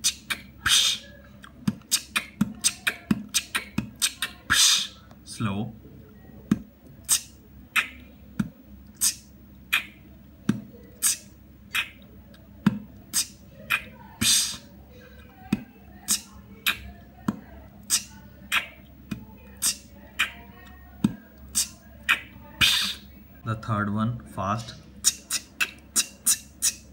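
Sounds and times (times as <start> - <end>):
beatboxing: 0.0 - 5.0, 6.5 - 14.7, 15.5 - 23.1, 25.0 - 26.9.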